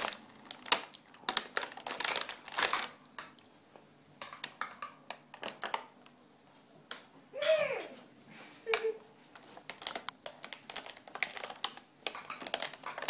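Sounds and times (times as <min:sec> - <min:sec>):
child's short vocal sound: 0:07.4 - 0:08.0.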